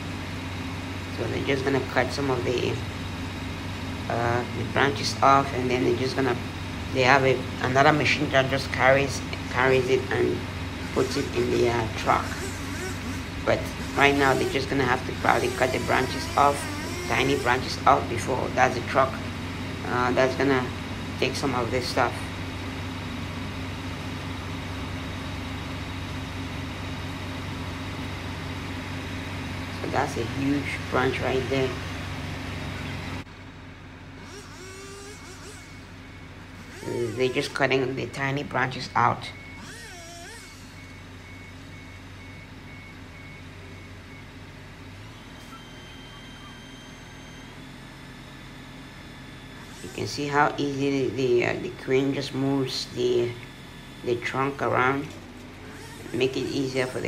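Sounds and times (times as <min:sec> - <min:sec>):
heavy machinery engine humming: 0:00.0 - 0:57.0
reversing alarm beeping: 0:04.1 - 0:22.4, 0:34.2 - 0:55.1.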